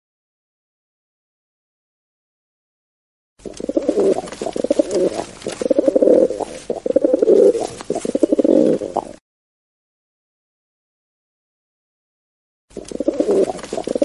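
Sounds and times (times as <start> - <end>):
pigeons cooing: 3.4 - 9.2, 12.8 - 14.0.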